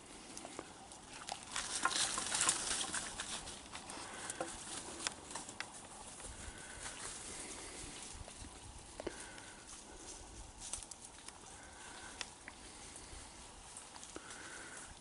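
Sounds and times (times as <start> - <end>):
twigs snapping: 0.3 - 5.8, 10.6 - 12.6.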